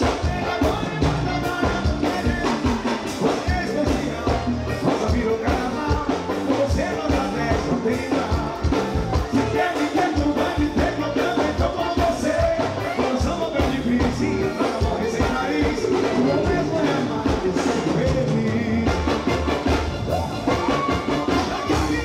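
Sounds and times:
person singing: 0.0 - 19.5, 20.1 - 22.0
steady drum beat: 0.0 - 22.0.

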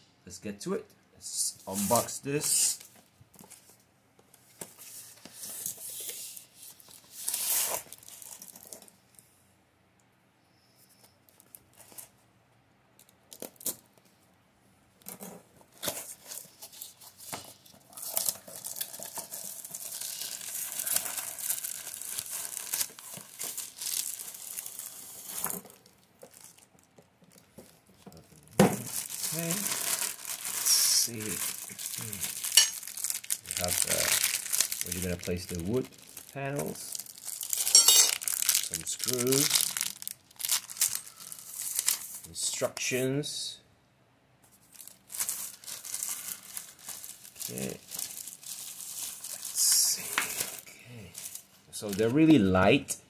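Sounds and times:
plastic wrap rustling: 1.6 - 9.0, 15.0 - 42.4, 44.5 - 52.6
cardboard and tape tearing: 5.3 - 8.8, 15.1 - 26.6, 28.6 - 42.3, 44.7 - 51.4.

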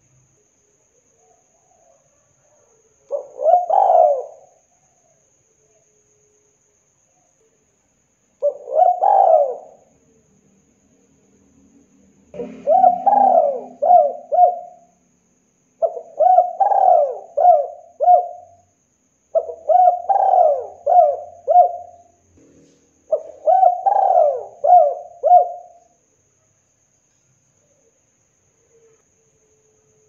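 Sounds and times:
dove cooing: 1.2 - 4.6, 8.4 - 9.9, 12.4 - 15.0, 15.8 - 18.6, 19.4 - 22.1, 23.1 - 25.9.

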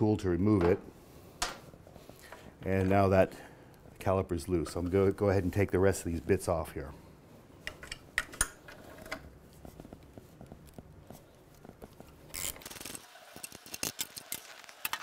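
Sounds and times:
tools clicking and tapping: 7.6 - 9.3.

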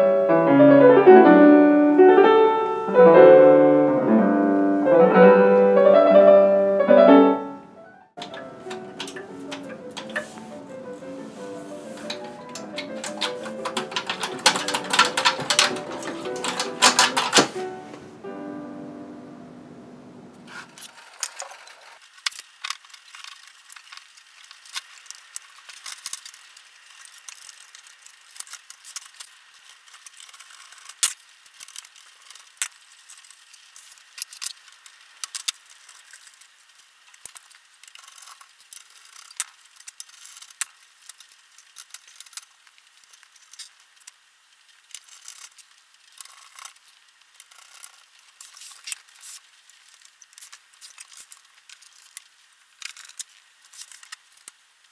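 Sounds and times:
metallic clicks and rattles: 8.2 - 10.5, 12.0 - 17.7.

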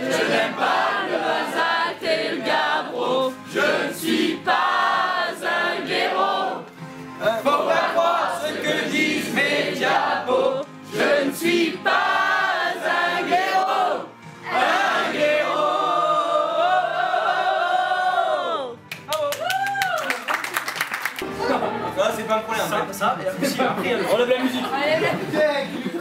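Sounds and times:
group singing in chorus: 0.0 - 18.7.

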